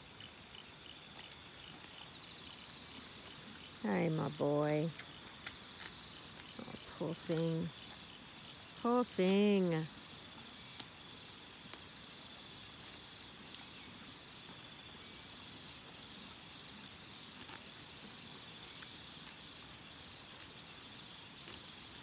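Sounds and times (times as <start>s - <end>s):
horse tearing grass: 1.1s - 2.0s, 3.1s - 8.1s, 11.6s - 12.0s, 12.7s - 14.8s, 17.3s - 20.6s, 21.2s - 22.0s.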